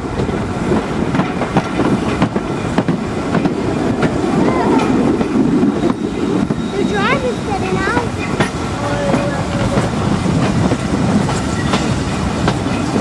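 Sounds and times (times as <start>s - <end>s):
steam train rumble: 0.0s - 13.0s
wheels clicking over rail joints: 0.1s - 13.0s.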